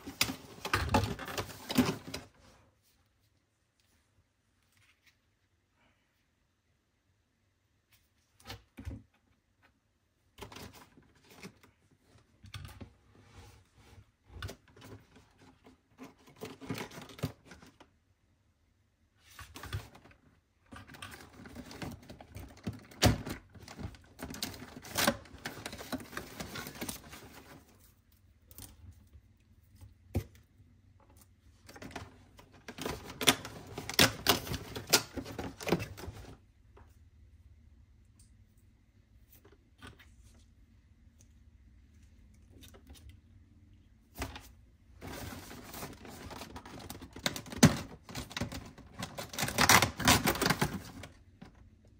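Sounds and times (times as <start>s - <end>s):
cardboard rustling: 0.0s - 2.5s, 19.2s - 28.6s, 31.5s - 36.4s, 44.1s - 51.6s.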